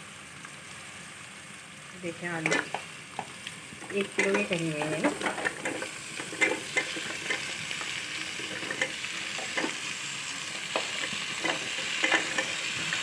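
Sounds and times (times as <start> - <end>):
oil sizzling: 0.0 - 13.0.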